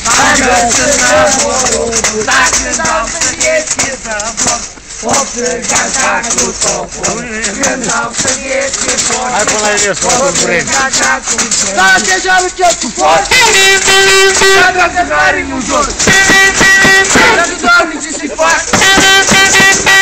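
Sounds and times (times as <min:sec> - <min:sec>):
tambourines and rattles jangling: 0:00.0 - 0:14.6
people chanting and calling: 0:00.0 - 0:20.0.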